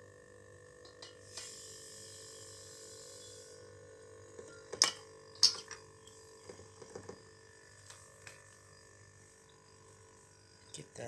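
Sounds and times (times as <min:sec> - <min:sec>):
refrigerator compressor hum: 0:00.0 - 0:11.0
hiss: 0:01.2 - 0:03.5.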